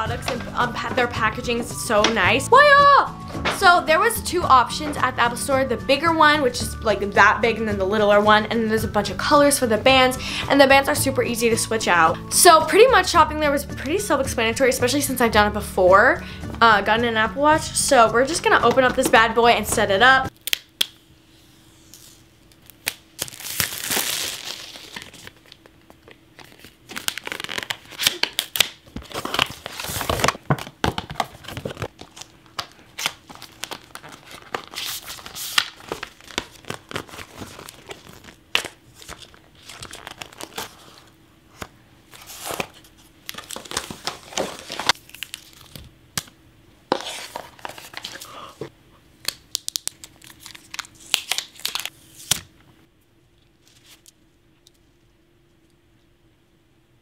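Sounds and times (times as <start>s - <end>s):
paper ripping and crinkling: 22.0s - 25.7s, 26.3s - 30.4s, 31.2s - 41.1s, 42.1s - 45.8s, 46.9s - 48.3s, 49.6s - 52.4s.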